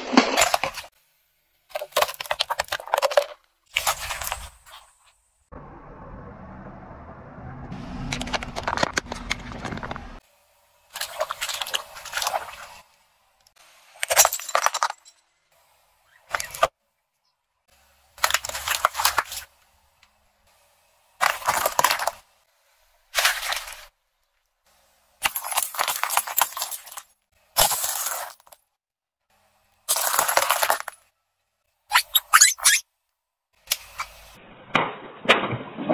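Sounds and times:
objects crushed under car tyre: 21.2s - 22.2s, 29.9s - 31.1s.

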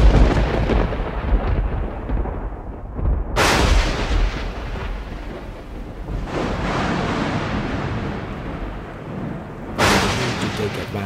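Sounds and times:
thunder rumbling and cracking: 0.0s - 11.0s.

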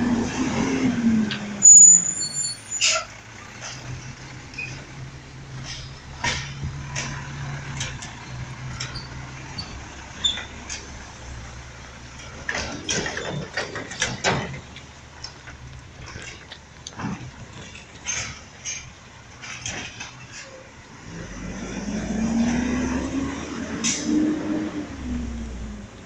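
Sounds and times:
sharp knocks and clatter: 5.6s - 9.8s, 12.1s - 20.4s.

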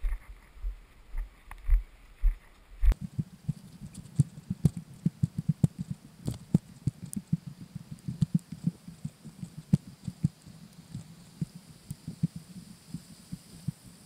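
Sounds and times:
muffled footsteps and knocks: 0.0s - 13.8s.

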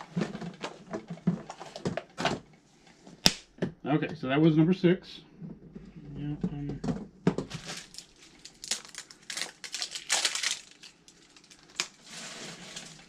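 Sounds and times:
plastic crackling and crinkling: 7.3s - 13.0s.

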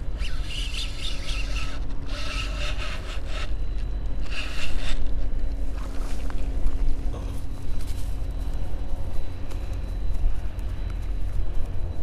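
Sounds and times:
spinning reel whirring: 0.0s - 5.2s.

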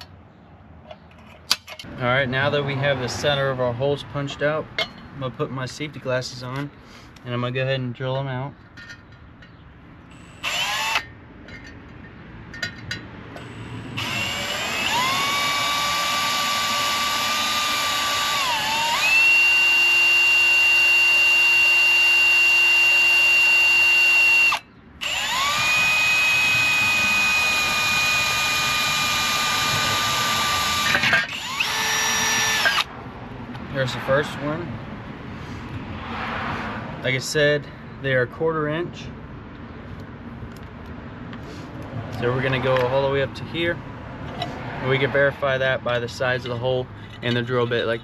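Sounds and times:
power drill drilling into metal: 10.2s - 11.1s, 13.4s - 32.9s.

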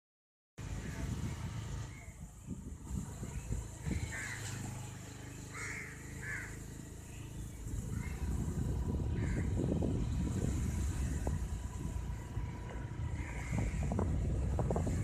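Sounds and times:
wind on microphone: 0.6s - 4.4s, 7.6s - 15.0s
motorbike engine running: 0.6s - 15.0s
crows cawing: 4.0s - 4.9s, 5.5s - 6.7s, 7.9s - 8.2s, 9.1s - 9.6s, 13.0s - 14.2s.

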